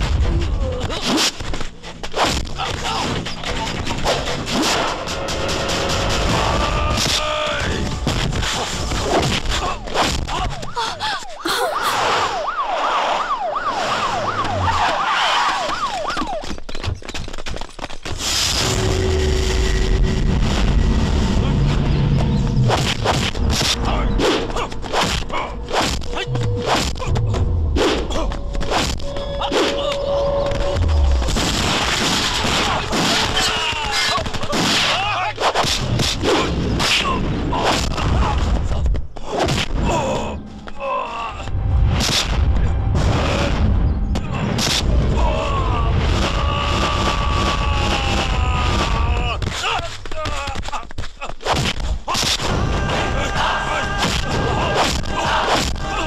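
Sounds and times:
gunshots: 0:31.2 - 0:38.5
punch and kick impacts: 0:42.0 - 0:42.4
men shouting and grunting: 0:52.2 - 0:56.0.

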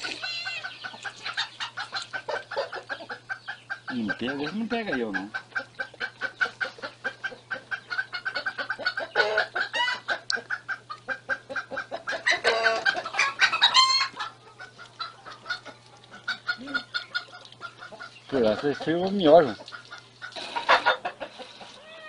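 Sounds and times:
chicken high call: 0:00.0 - 0:01.7, 0:09.1 - 0:10.1, 0:12.2 - 0:14.4
chickens clucking: 0:00.0 - 0:22.0.

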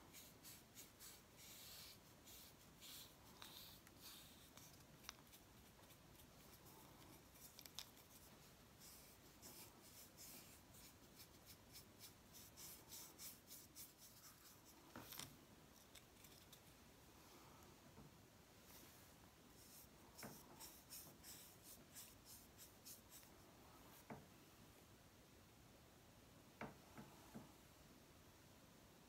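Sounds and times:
paintbrush strokes on gourd: 0:00.0 - 0:16.8, 0:18.6 - 0:24.1.

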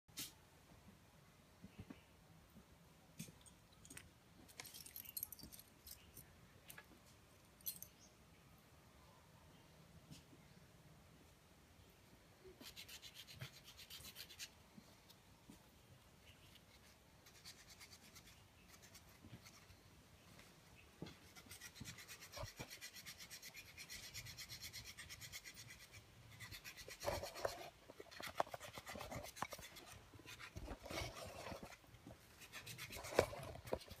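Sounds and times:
hand tool filing bone: 0:21.2 - 0:34.0.

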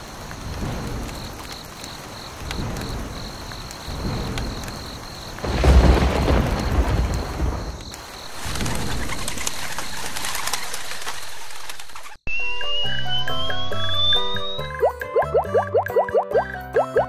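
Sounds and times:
thunder rumbling: 0:00.0 - 0:10.2
steady rain hiss: 0:00.0 - 0:10.6.

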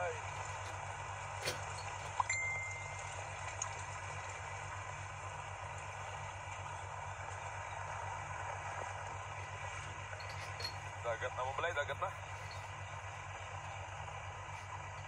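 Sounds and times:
floodwater rushing: 0:00.0 - 0:15.0
low steady hum: 0:00.0 - 0:15.0.

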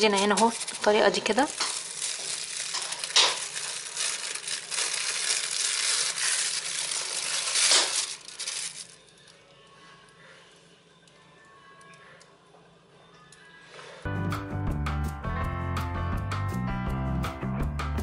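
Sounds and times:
plastic bag crinkling: 0:00.0 - 0:09.6.

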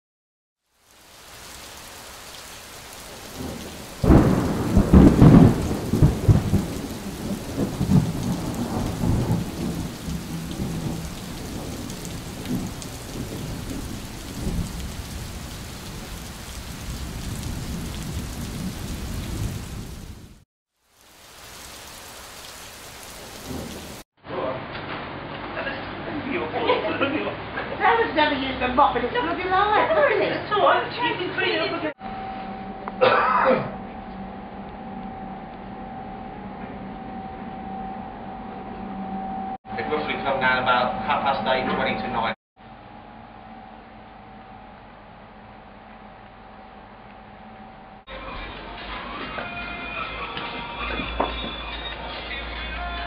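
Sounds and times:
steady rain: 0:00.6 - 0:24.0
thunder clap rumbling: 0:03.1 - 0:20.4, 0:23.2 - 0:24.0.

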